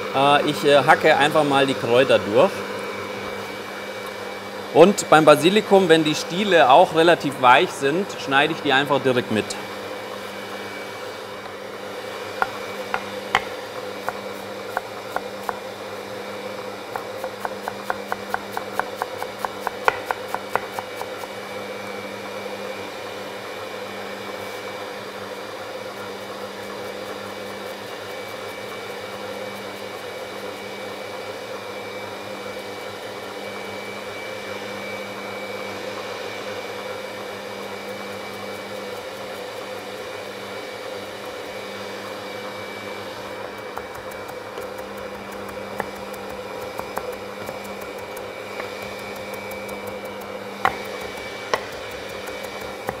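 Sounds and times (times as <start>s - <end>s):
electric mixer motor hum: 0.0s - 53.0s
knife tapping on cutting board: 12.4s - 15.6s, 16.9s - 20.9s, 43.8s - 53.0s.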